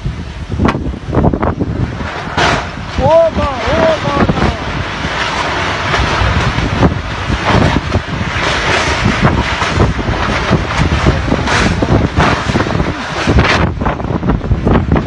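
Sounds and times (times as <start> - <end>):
gusty wind thumps: 0.0 - 15.0
tornado winds on microphone: 0.0 - 15.0.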